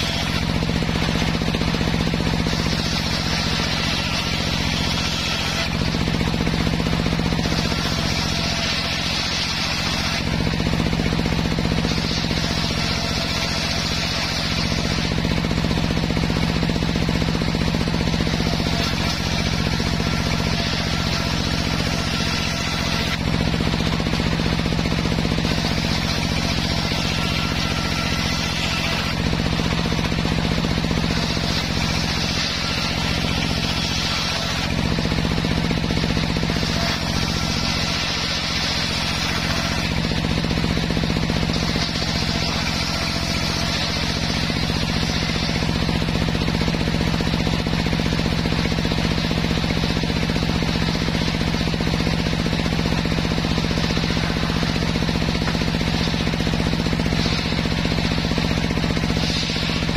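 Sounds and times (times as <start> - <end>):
saw motor hum: 0.0 - 59.9
table saw cutting wood: 0.0 - 59.9.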